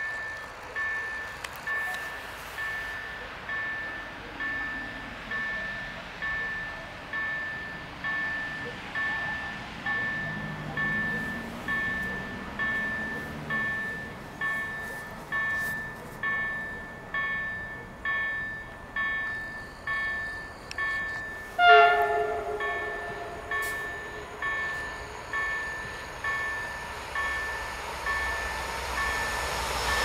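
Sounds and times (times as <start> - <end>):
level crossing warning bell: 0.0 - 30.0
train horn blast: 21.6 - 25.2.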